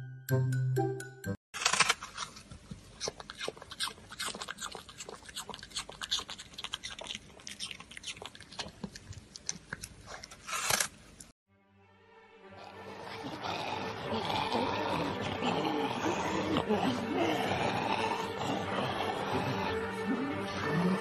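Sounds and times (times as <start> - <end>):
puppy crunching an apple: 1.6 - 11.3.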